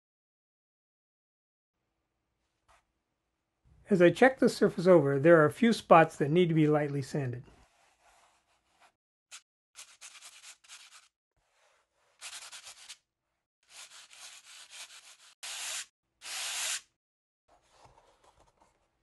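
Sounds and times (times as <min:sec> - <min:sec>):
sandpaper rubbing by hand: 0:07.6 - 0:13.0, 0:13.6 - 0:16.9.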